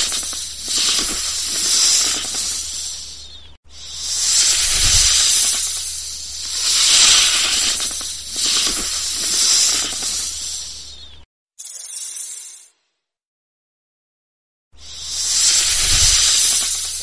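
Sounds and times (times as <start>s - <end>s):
snake hissing: 0.0s - 11.2s, 14.8s - 17.0s.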